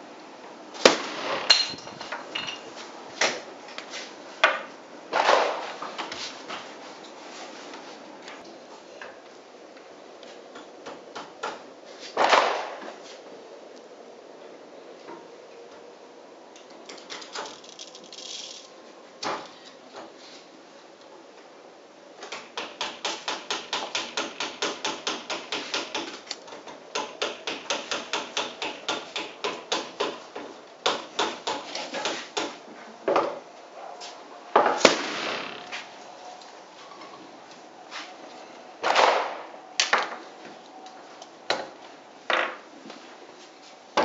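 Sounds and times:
model cannon bang: 0:34.8 - 0:35.8.

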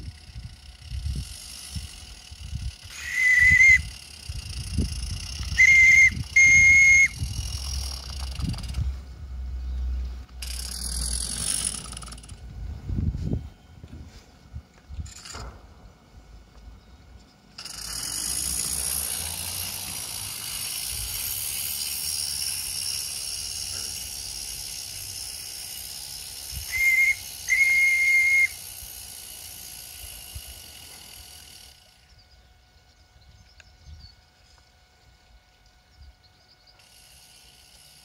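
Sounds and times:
high steam whistle toots: 0:02.9 - 0:03.9, 0:05.5 - 0:07.2, 0:26.6 - 0:28.6.

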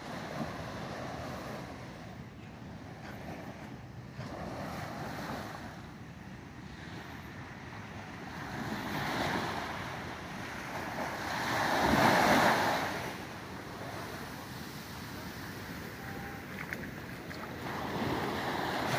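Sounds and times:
small waves breaking on beach: 0:00.0 - 0:05.9, 0:06.6 - 0:18.9.

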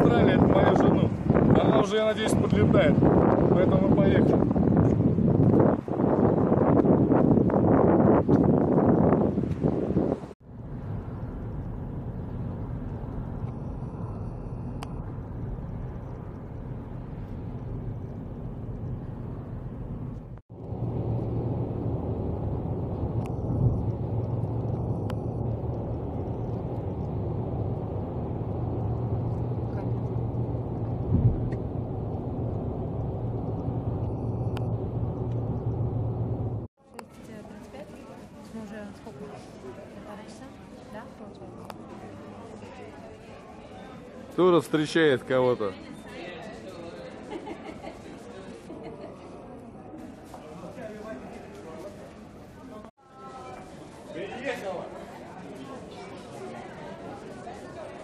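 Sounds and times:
wind rushing on microphone: 0:00.0 - 0:36.7
car road and engine rumble: 0:00.0 - 0:36.8.

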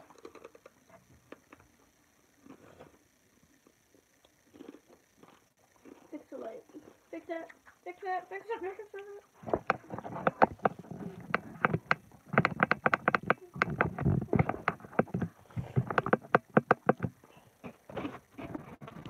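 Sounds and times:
rapid clicking and knocking: 0:09.4 - 0:17.9.

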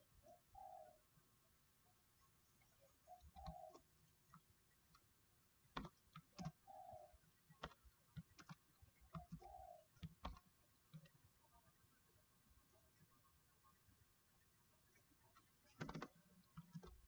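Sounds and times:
computer keyboard keystrokes: 0:03.3 - 0:03.8, 0:05.8 - 0:06.6, 0:07.6 - 0:11.1, 0:15.7 - 0:17.0.

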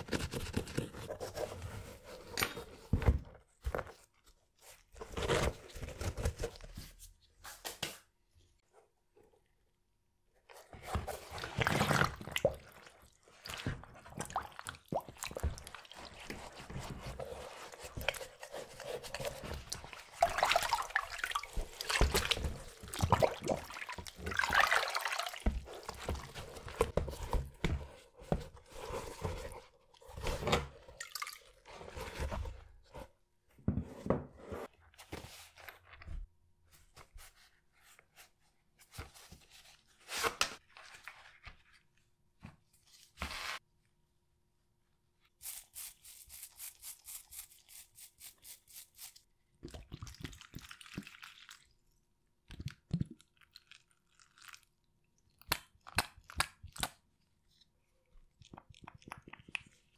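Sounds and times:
wet splashing and dripping: 0:19.9 - 0:26.3.

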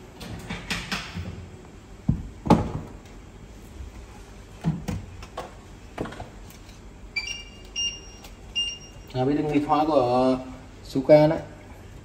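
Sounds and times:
knocks and clunks of kitchen items: 0:00.3 - 0:01.4, 0:02.0 - 0:03.0.

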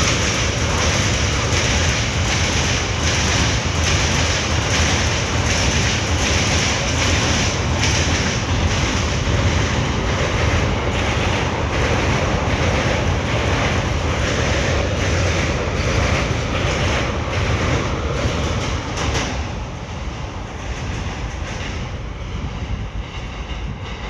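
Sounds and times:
wheels clattering over rail joints: 0:00.0 - 0:14.6
freight train rumbling on bridge: 0:00.0 - 0:24.0.

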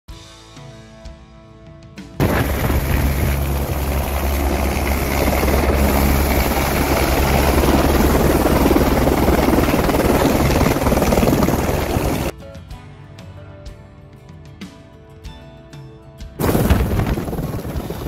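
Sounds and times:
helicopter turbine and rotor: 0:02.2 - 0:12.3, 0:16.4 - 0:18.0.

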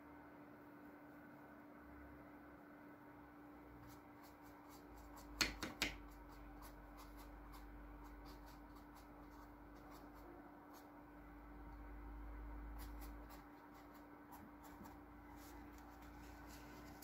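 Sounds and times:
brush scratching on canvas: 0:03.8 - 0:05.4, 0:06.1 - 0:11.0, 0:12.8 - 0:17.0.

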